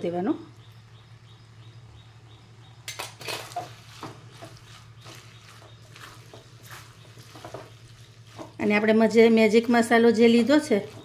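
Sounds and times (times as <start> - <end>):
low steady hum: 0.0 - 11.0
spatula scraping metal wok: 3.2 - 8.7.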